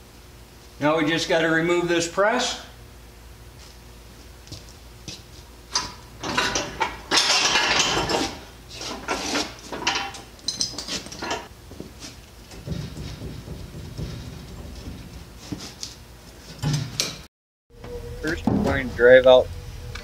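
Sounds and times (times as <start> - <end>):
metal parts clanking and scraping: 5.7 - 11.5.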